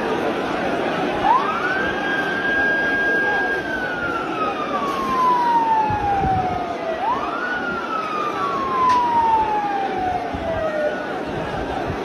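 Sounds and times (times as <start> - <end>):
large crowd din: 0.0 - 12.0
vehicle siren wailing: 1.2 - 11.5.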